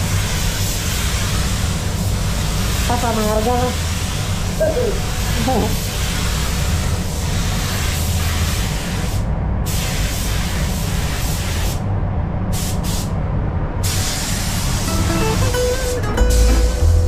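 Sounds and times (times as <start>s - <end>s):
spray gun hissing: 0.0s - 11.8s, 13.8s - 15.5s.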